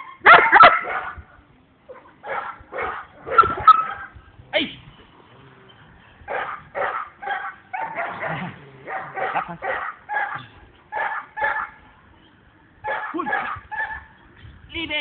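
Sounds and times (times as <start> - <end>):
dog barking: 0.2 - 1.2, 1.9 - 4.1, 6.3 - 11.8, 12.8 - 14.1.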